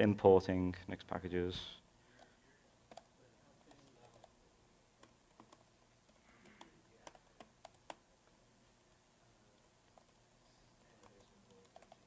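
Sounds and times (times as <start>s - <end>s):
typing on computer keyboard: 2.9s - 4.3s, 5.0s - 8.0s, 10.8s - 12.0s.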